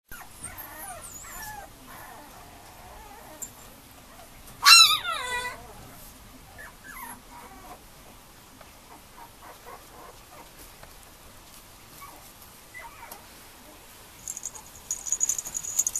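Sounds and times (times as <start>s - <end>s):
puppy whining: 0.1s - 7.8s, 12.0s - 15.9s
puppy yelping: 4.6s - 5.7s.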